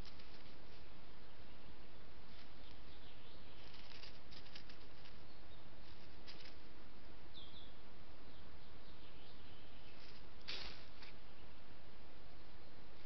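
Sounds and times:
animal rustling on dry leaves: 0.0 - 0.9, 3.6 - 6.7, 10.0 - 11.2
bird chirping: 0.0 - 6.5, 7.3 - 11.7
microphone hiss: 0.0 - 13.0.

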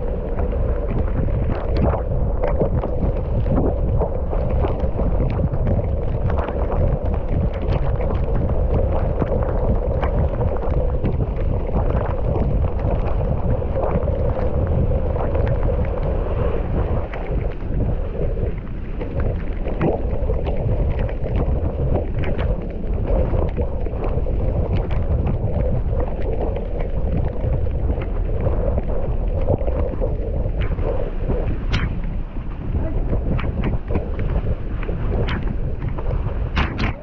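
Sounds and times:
wind rumble on microphone: 0.0 - 37.0.

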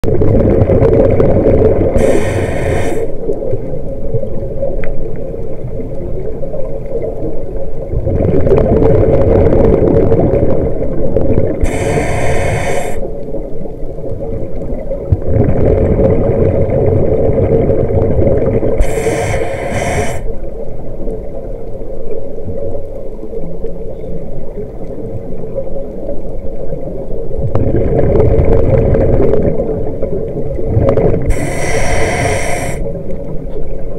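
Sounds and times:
bubbling exhale: 1.8 - 3.2, 11.6 - 13.1, 18.7 - 20.4, 31.0 - 33.0
regulator hissing inhale: 2.0 - 3.2, 11.6 - 13.1, 18.8 - 20.3, 31.3 - 33.0.

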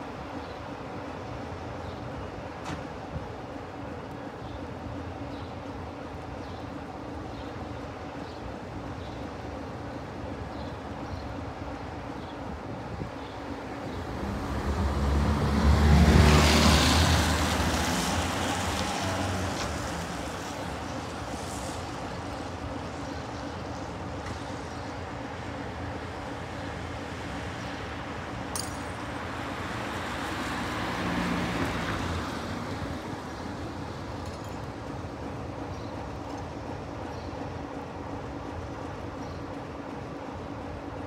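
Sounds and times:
diesel locomotive engine idling: 33.4 - 41.0.

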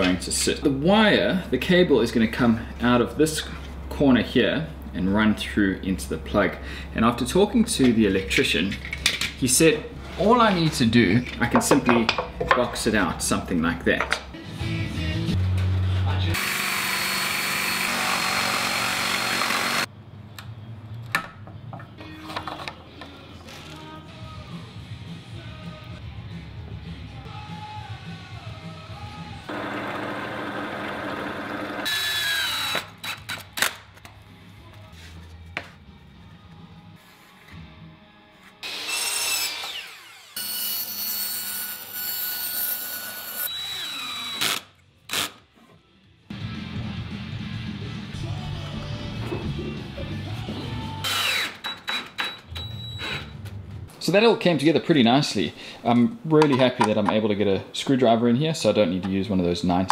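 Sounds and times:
power tool running on wood: 16.4 - 19.9, 29.5 - 31.9.

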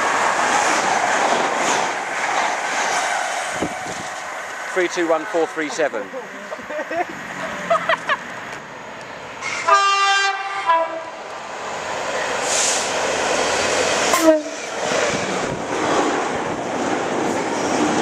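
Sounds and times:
train rumbling past: 0.0 - 18.0
locomotive horn blast: 9.4 - 11.2, 14.1 - 14.7.

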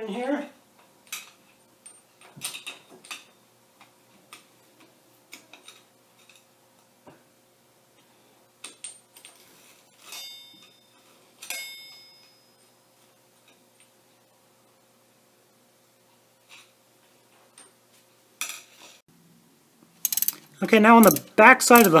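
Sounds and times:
ringing metal clinks: 10.0 - 12.8
hand tool clicking and scraping metal: 20.0 - 22.0.

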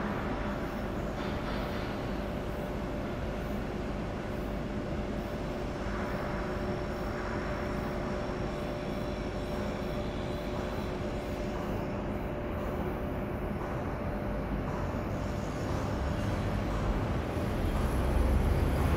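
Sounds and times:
machinery drone: 15.0 - 18.9.

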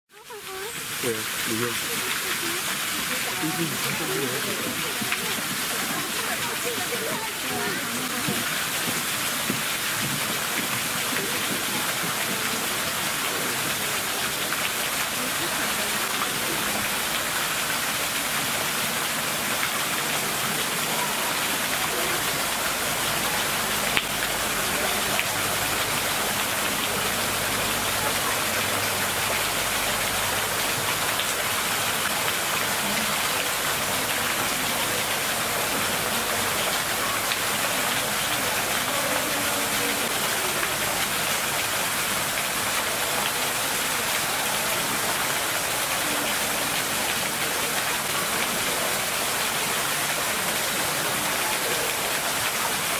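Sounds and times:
hiss of falling water: 0.2 - 52.9.

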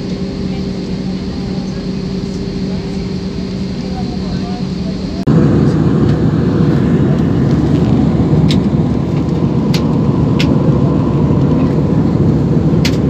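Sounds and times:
jet engine roar in cabin: 0.0 - 13.0.

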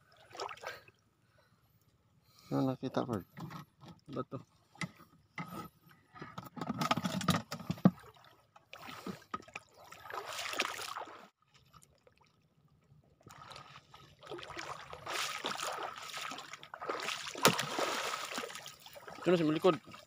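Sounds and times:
seawater sloshing and splashing: 0.0 - 0.9, 7.7 - 20.0.

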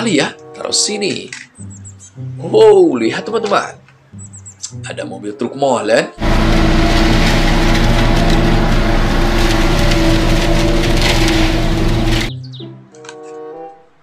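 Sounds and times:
diesel truck engine driving past: 6.2 - 12.3.

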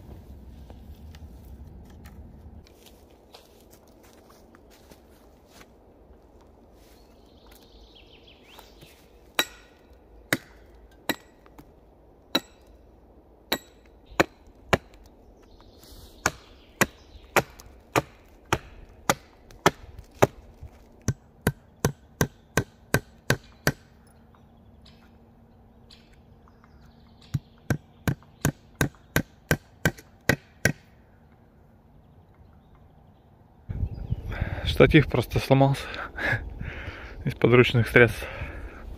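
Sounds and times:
hand axe chopping wood: 9.4 - 11.6, 16.2 - 23.9, 27.3 - 30.8.

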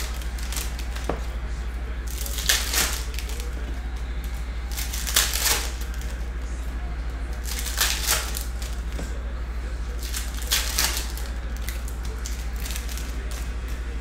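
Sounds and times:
foil wrappers tearing and crinkling: 0.0 - 1.3, 2.0 - 6.2, 7.3 - 9.0, 9.9 - 13.9
steady low hum: 0.0 - 14.0.

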